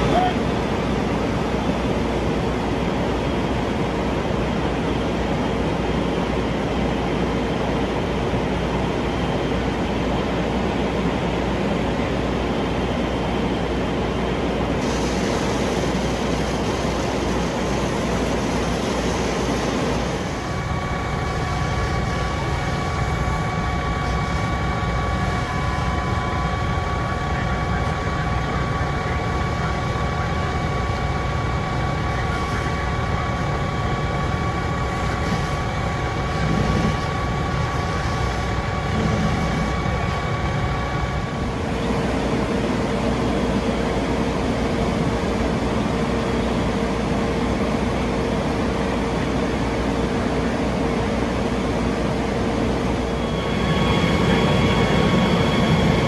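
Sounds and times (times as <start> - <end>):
diesel engines rumbling: 0.0 - 56.0
high whining tones: 52.6 - 56.0.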